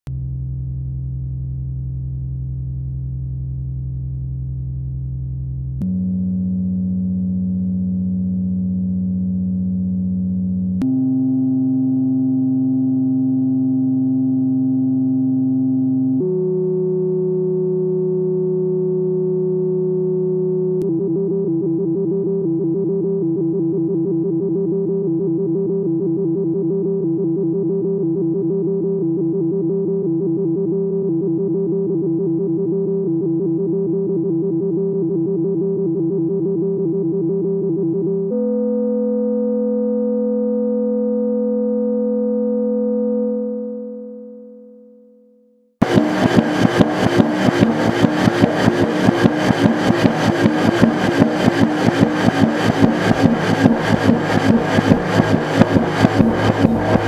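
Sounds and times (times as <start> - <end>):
synthesizer drone chord: 0.1 - 57.0
fast pulsing synth tone: 45.8 - 57.0.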